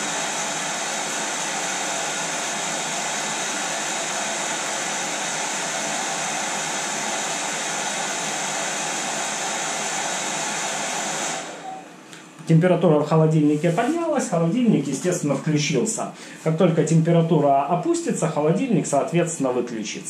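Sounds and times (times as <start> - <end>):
hair dryer running: 0.0 - 12.0.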